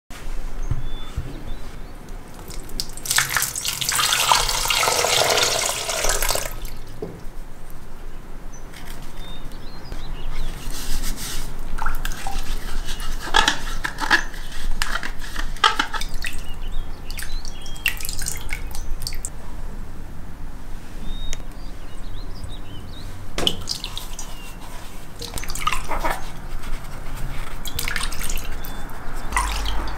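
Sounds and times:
water splashing in a glass bowl: 2.4s - 6.8s, 23.4s - 24.2s, 25.2s - 26.1s, 27.6s - 29.9s.

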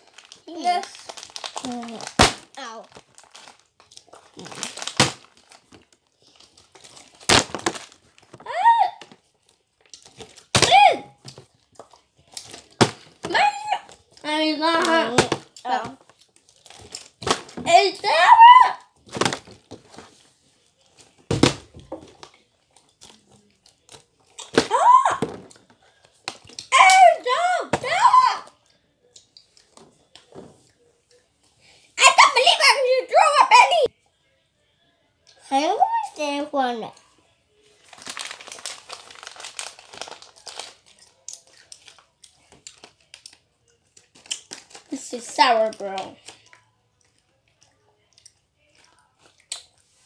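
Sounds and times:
plastic bottle crinkling: 0.0s - 10.6s, 19.0s - 20.2s, 37.8s - 43.4s, 44.0s - 46.5s.

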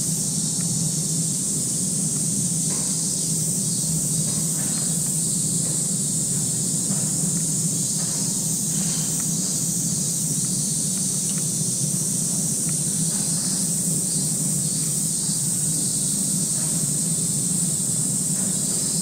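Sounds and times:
steady high hiss: 0.0s - 19.0s
faint ticks: 10.4s - 13.6s.

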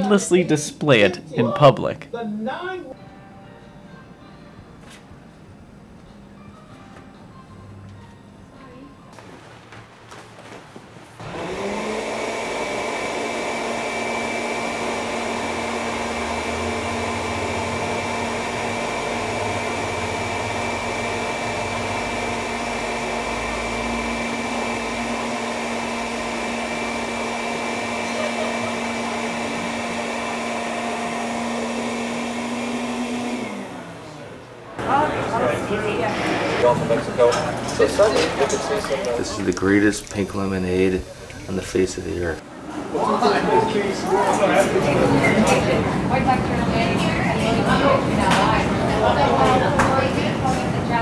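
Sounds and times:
electric air pump running: 11.2s - 34.1s, 38.7s - 42.4s.

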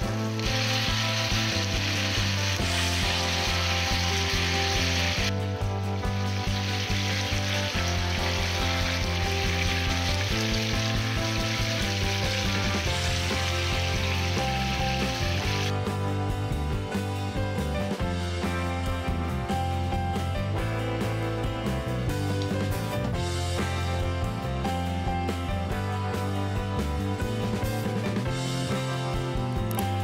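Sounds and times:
chicken sizzling in frying pan: 0.0s - 15.8s
background music: 0.0s - 30.0s.

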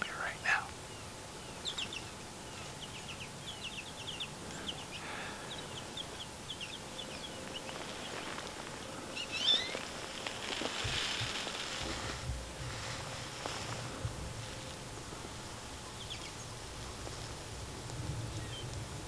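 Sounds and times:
small bird chirping: 0.0s - 10.3s, 15.4s - 17.4s, 18.3s - 18.8s.

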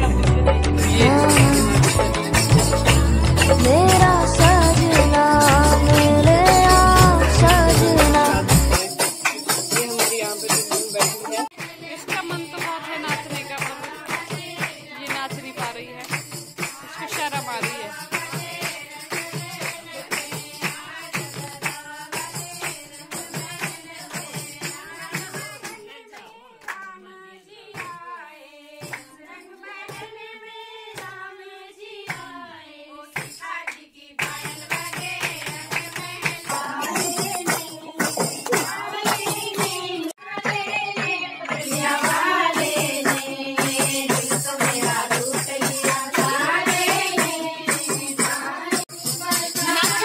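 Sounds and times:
percussion beat: 0.0s - 27.0s, 27.7s - 30.3s, 30.9s - 31.3s, 32.0s - 32.4s, 33.1s - 50.0s
women singing folk songs: 0.8s - 9.1s, 11.4s - 50.0s.

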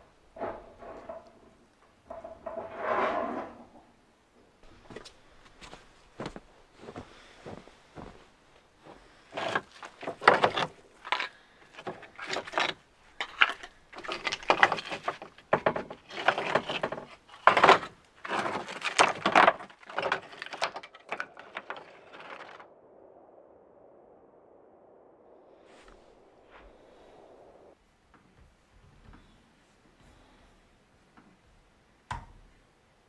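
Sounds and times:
stone slabs knocking and scraping: 9.3s - 22.6s.

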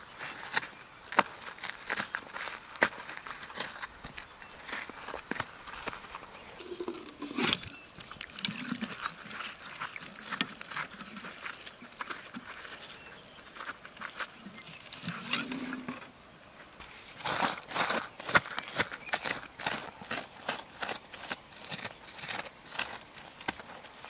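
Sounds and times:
fingers scraping through soil and gravel: 0.2s - 16.1s, 16.8s - 24.0s.

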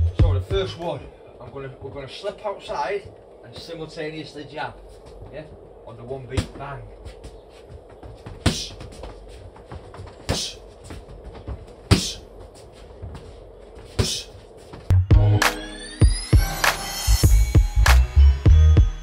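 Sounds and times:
music with heavy beat: 14.9s - 19.0s.

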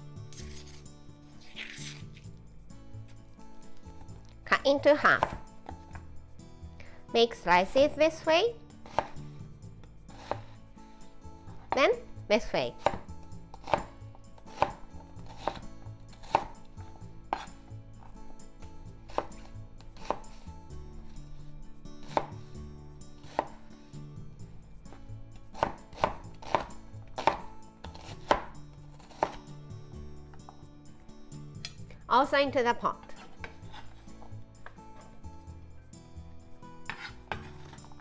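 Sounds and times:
knife chopping on wooden board: 8.8s - 9.2s, 10.1s - 10.6s, 12.8s - 16.6s, 17.3s - 17.5s, 19.1s - 20.4s, 22.0s - 22.4s, 25.6s - 29.5s, 33.2s - 34.8s, 36.9s - 38.0s.

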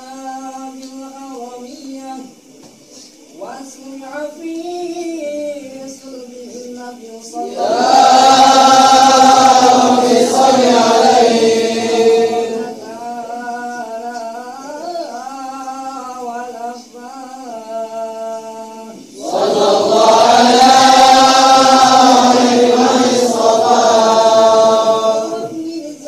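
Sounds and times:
man chanting melodically: 12.4s - 19.9s, 24.2s - 26.0s.

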